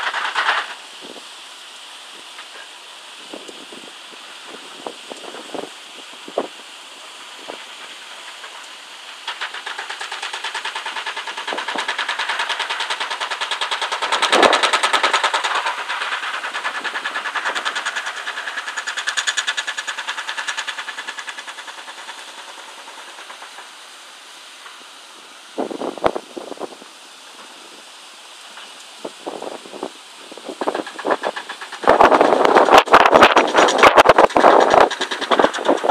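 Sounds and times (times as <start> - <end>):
excavator metallic clatter: 0.0 - 0.8, 7.5 - 23.8, 30.5 - 35.9.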